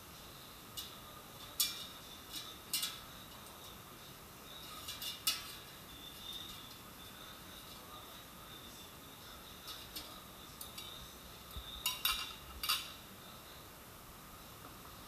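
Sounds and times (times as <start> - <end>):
metal tongs clinking: 0.8 - 3.8, 4.6 - 6.8, 9.6 - 11.0, 11.7 - 13.0.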